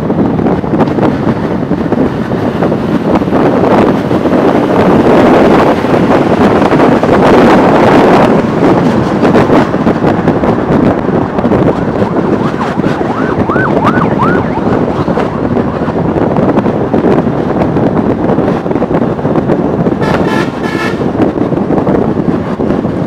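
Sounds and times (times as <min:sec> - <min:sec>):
motorcycle engine and road noise: 0:00.0 - 0:23.0
wind buffeting microphone: 0:00.0 - 0:23.0
short horn blasts: 0:20.0 - 0:21.2.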